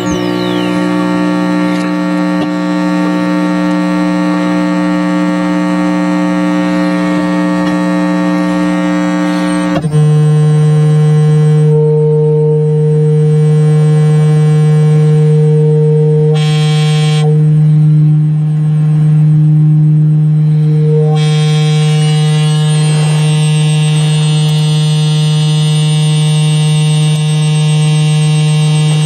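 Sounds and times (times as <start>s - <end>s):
electronic buzzing drone: 0.0s - 29.0s.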